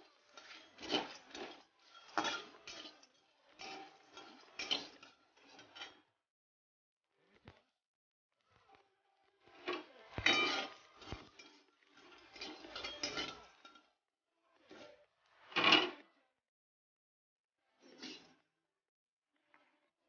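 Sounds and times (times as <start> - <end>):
metal spatula scraping wok: 0.0 - 6.1, 9.6 - 13.9, 17.8 - 18.4
dry spices rattling in pan: 0.1 - 5.6.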